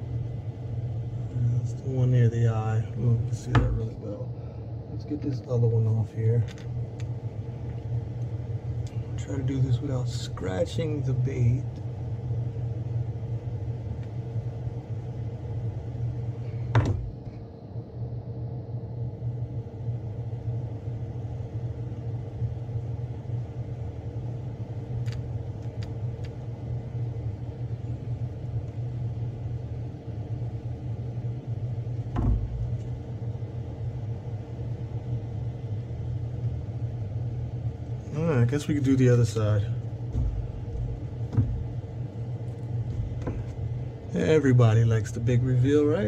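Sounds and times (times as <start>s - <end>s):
low motor hum: 0.0s - 46.0s
knocks: 16.7s - 17.2s, 32.1s - 32.6s, 40.1s - 41.7s.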